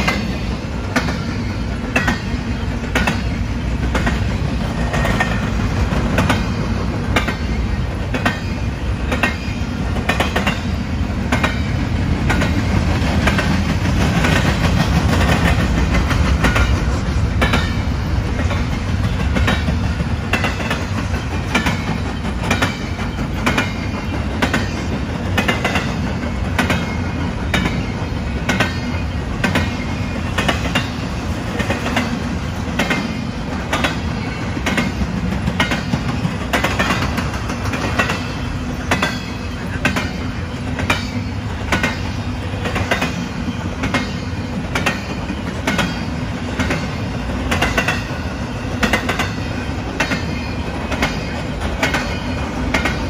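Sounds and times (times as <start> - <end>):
freight train rumbling past: 0.0 - 53.0
wheels clicking over rail joints: 0.0 - 53.0.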